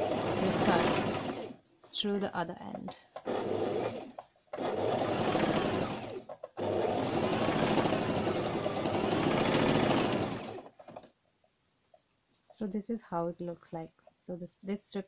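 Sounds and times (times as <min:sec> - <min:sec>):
sewing machine stitching: 0:00.0 - 0:01.6, 0:02.8 - 0:11.1.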